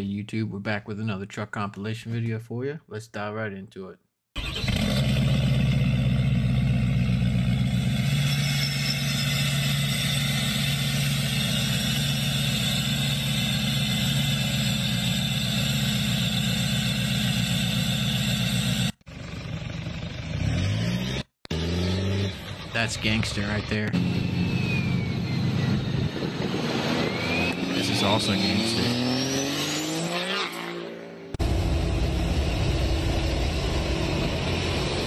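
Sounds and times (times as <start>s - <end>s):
truck engine revving: 4.4s - 35.0s
truck engine running steady: 5.2s - 20.4s, 31.4s - 35.0s.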